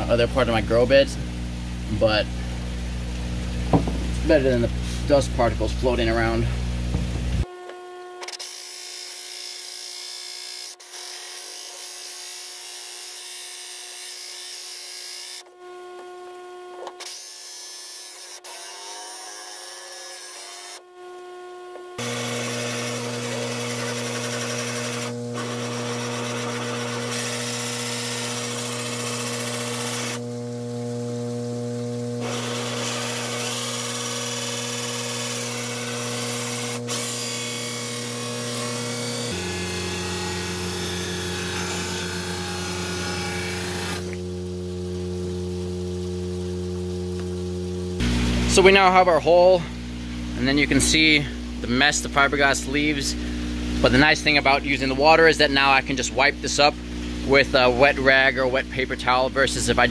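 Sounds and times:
steady low hum: 0:00.0 - 0:07.5
drill hole saw grinding fiberglass: 0:03.8 - 0:30.3, 0:32.2 - 0:44.3.

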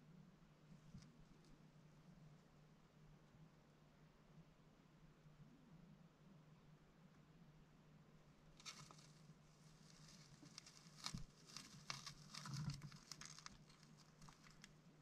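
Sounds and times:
faint rustling and crackling: 0:00.6 - 0:02.6, 0:08.4 - 0:15.0.

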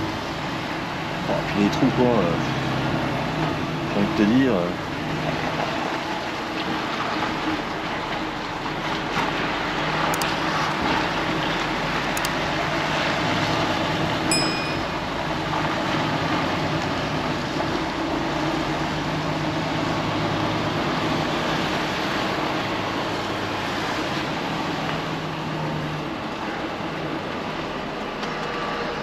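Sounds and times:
high electronic beep: 0:14.3 - 0:15.0.

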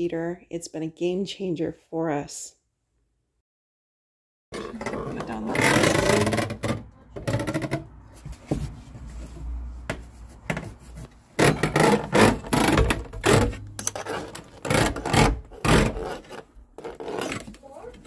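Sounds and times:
knocks and bumps of plastic casing: 0:04.6 - 0:08.7, 0:11.4 - 0:13.7.

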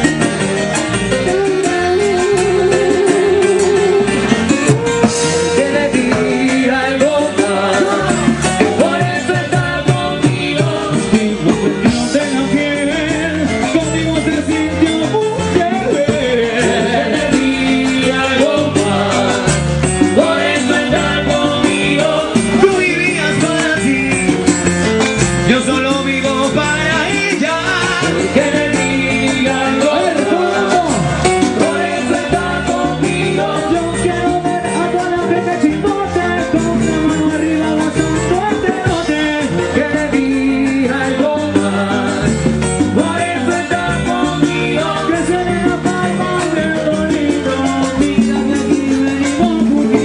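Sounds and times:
latin dance band playing: 0:00.0 - 0:50.0
percussion beat: 0:00.0 - 0:50.0
trumpets: 0:04.0 - 0:06.8.

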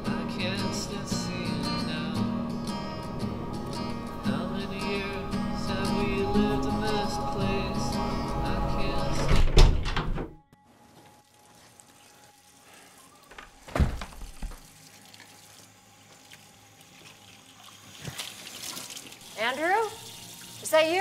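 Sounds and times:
film score with guitar: 0:00.0 - 0:09.2
heavy door shutting: 0:08.9 - 0:10.4, 0:13.4 - 0:14.6.

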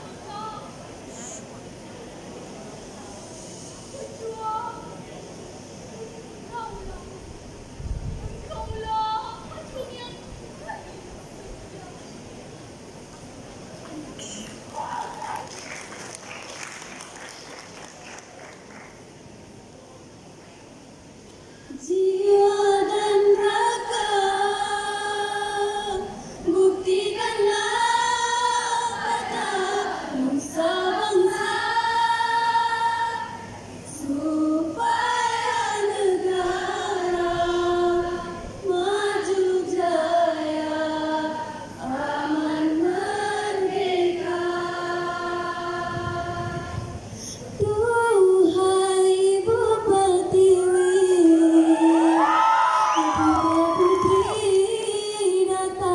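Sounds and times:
women's choir singing held notes: 0:21.7 - 0:48.8.

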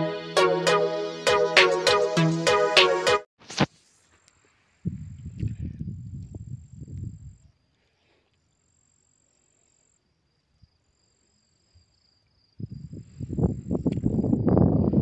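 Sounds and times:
low rumble on microphone: 0:04.8 - 0:07.5
crickets chirring: 0:05.0 - 0:15.0.

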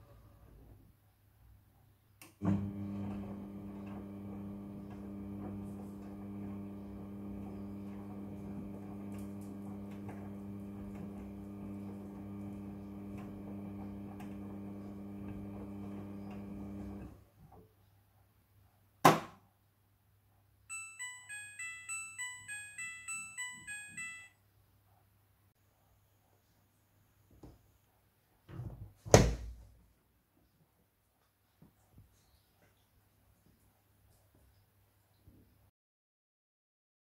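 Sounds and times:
washing machine drum motor humming: 0:02.4 - 0:17.2
beeping melody: 0:20.7 - 0:24.3.

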